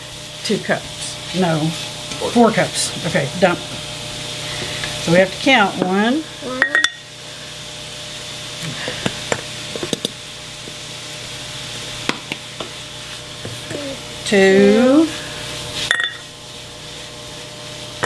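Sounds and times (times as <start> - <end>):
sausage sizzling in a skillet: 0.0 - 18.0
measuring cup clinking in glass jar: 15.9 - 16.2.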